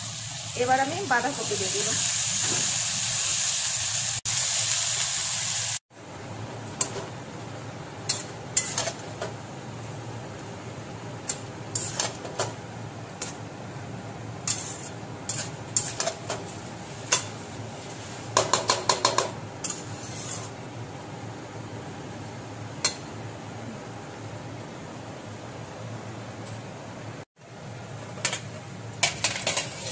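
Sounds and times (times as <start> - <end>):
metal spatula scraping a metal pan: 8.1 - 9.1, 11.3 - 12.3, 14.4 - 18.3, 19.6 - 20.6.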